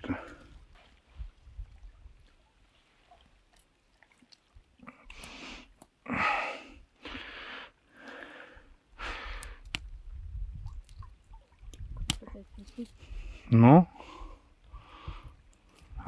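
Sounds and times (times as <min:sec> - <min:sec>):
person breathing heavily: 0:05.1 - 0:09.6, 0:13.0 - 0:15.4.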